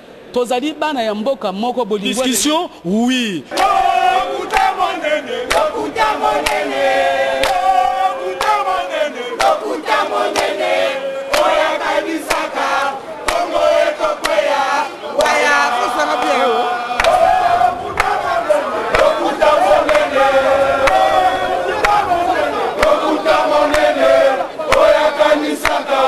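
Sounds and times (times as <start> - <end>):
crowd chanting and singing: 3.4 - 26.0
sharp handclaps: 3.5 - 3.8, 4.5 - 4.8, 5.5 - 8.8, 9.4 - 10.7, 11.3 - 12.6, 13.2 - 14.6, 17.0 - 18.3, 18.9 - 20.1, 20.8 - 21.2, 21.8 - 22.2, 22.8 - 24.0, 24.7 - 26.0.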